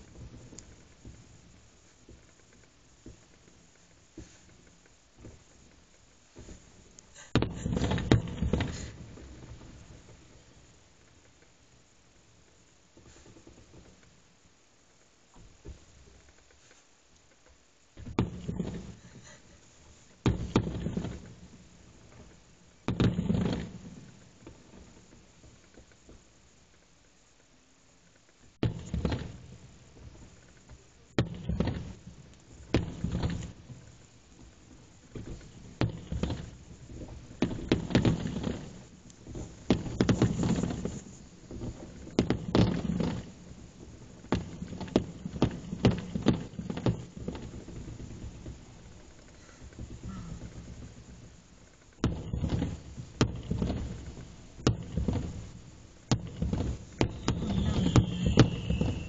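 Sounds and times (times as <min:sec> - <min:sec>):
firework shells bursting: 0:00.0 - 0:14.3, 0:28.6 - 0:59.0.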